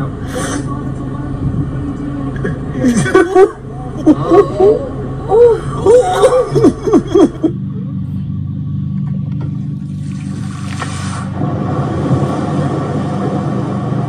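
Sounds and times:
steady low hum: 0:00.0 - 0:14.0
person laughing: 0:02.8 - 0:07.6.

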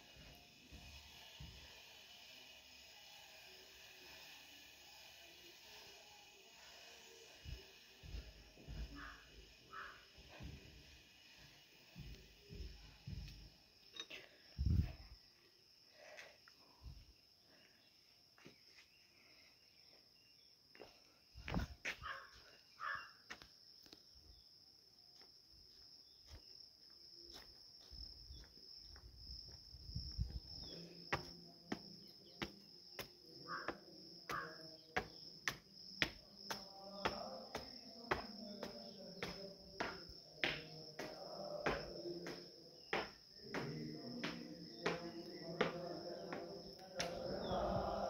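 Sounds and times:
insects chirring: 0:00.0 - 0:48.0
low rumbles on microphone: 0:14.6 - 0:15.1.

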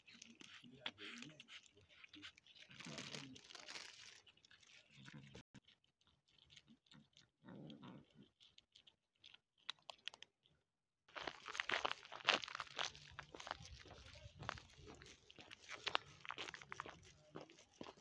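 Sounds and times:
cats crunching dry kibble: 0:00.0 - 0:18.0
footsteps on gravel: 0:11.1 - 0:18.0.

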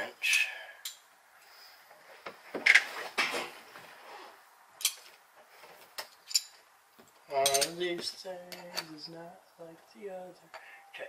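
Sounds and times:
metal hand tools clinking: 0:06.1 - 0:06.6, 0:07.4 - 0:08.9.

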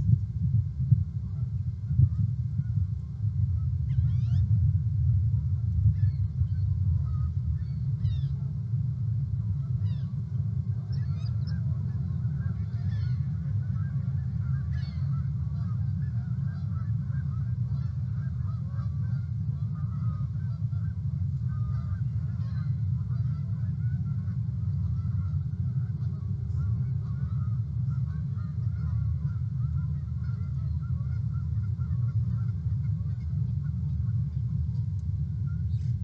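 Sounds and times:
steady low rumble: 0:00.0 - 0:36.0
geese honking: 0:06.0 - 0:08.4, 0:10.7 - 0:36.0.

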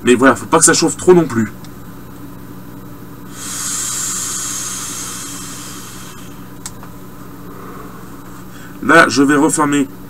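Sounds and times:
hiss of air and vapour: 0:03.3 - 0:08.8.

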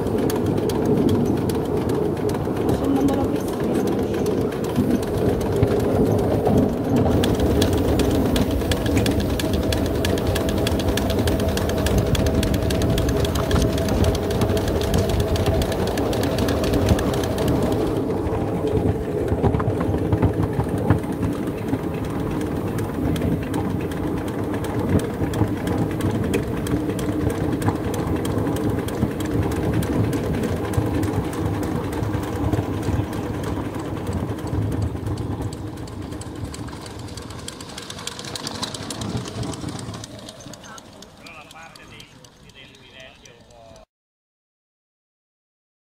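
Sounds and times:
steam locomotive clattering: 0:00.0 - 0:43.9
high steam hiss: 0:07.1 - 0:12.1.

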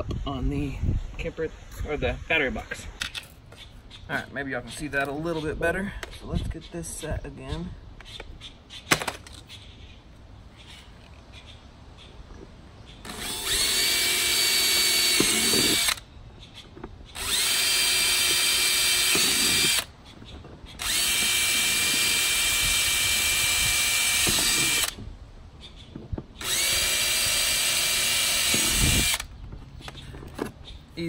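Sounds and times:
cordless drill whining: 0:13.1 - 0:16.0, 0:17.1 - 0:19.9, 0:20.8 - 0:25.0, 0:26.4 - 0:29.3.

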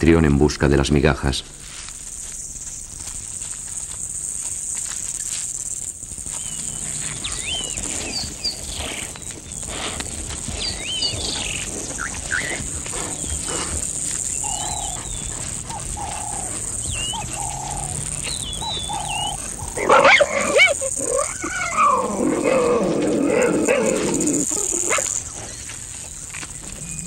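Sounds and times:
high insect drone: 0:00.0 - 0:27.0
animals chewing and tearing carcass: 0:01.9 - 0:27.0
birds chirping and whistling: 0:06.3 - 0:27.0.

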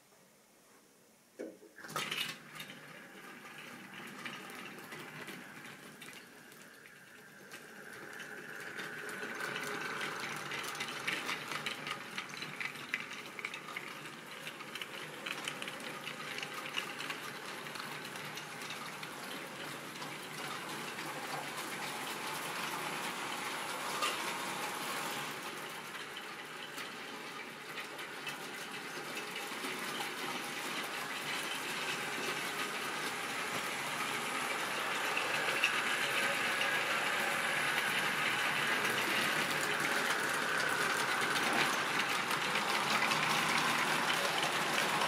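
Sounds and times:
model train wheels rumbling: 0:01.8 - 0:45.0.

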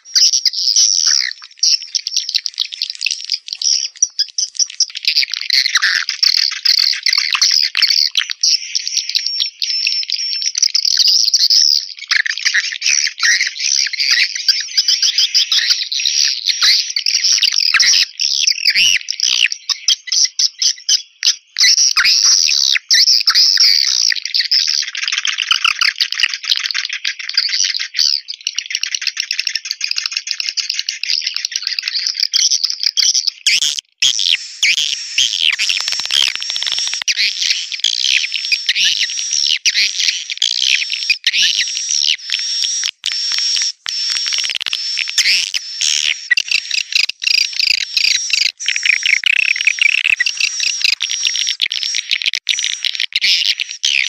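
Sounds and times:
swiftlet chirps twittering: 0:00.0 - 0:10.5, 0:33.3 - 0:54.0.

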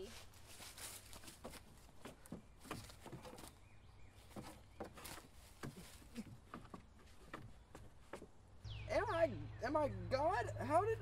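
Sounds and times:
faint clicks and rustles: 0:00.0 - 0:08.4.

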